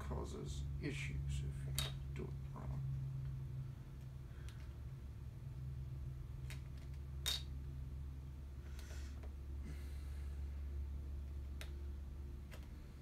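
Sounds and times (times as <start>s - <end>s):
steady low hum: 0.0s - 13.0s
soft breaths: 8.5s - 11.0s.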